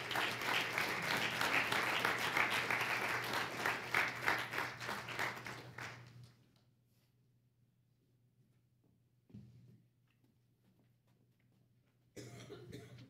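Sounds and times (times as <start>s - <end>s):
congregation applauding: 0.0s - 6.3s.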